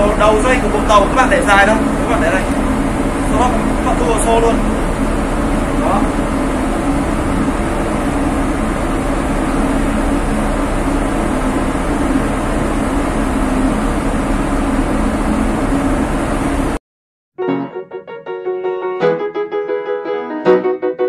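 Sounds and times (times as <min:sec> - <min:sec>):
machinery noise: 0:00.0 - 0:16.8
ship engine hum: 0:00.0 - 0:16.8.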